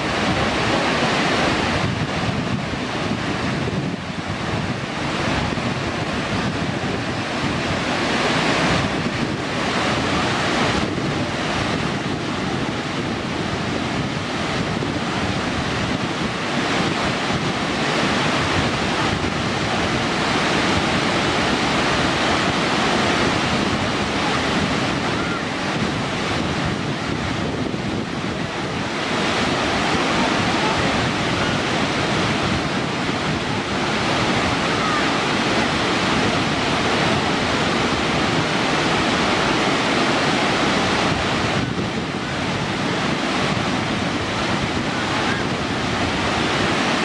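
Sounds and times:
waterfall crashing onto rocks: 0.0s - 12.0s, 28.4s - 47.0s.

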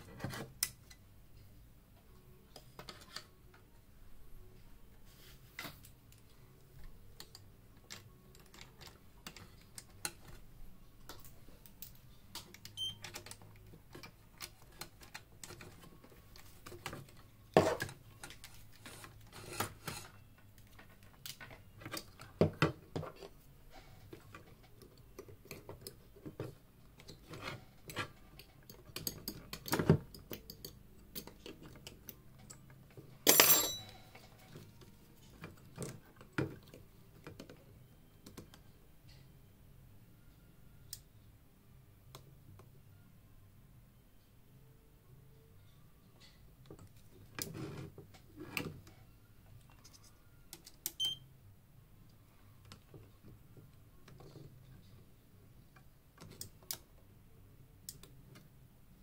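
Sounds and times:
small tools clicking and tapping: 24.1s - 34.7s.

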